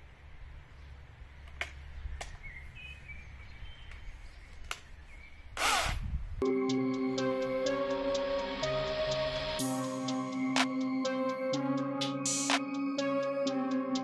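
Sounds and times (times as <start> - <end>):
bird chirp: 1.8 - 5.6
background music: 6.4 - 14.0.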